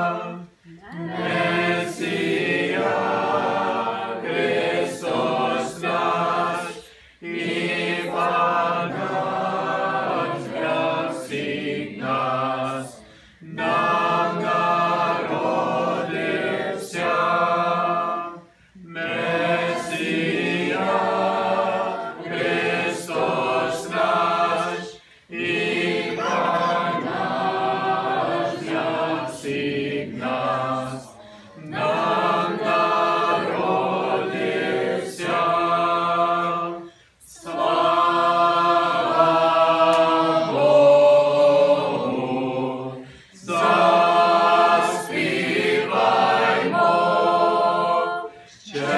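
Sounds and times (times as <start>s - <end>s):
mixed choir singing a cappella: 0.0s - 48.9s.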